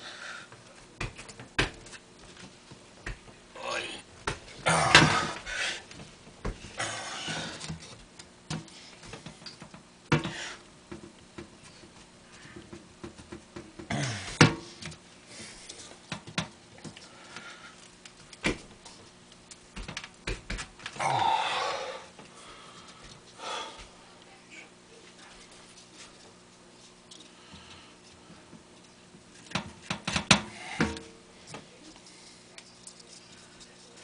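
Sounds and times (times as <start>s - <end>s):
breathy bursts: 6.8s - 7.7s, 21.0s - 23.9s.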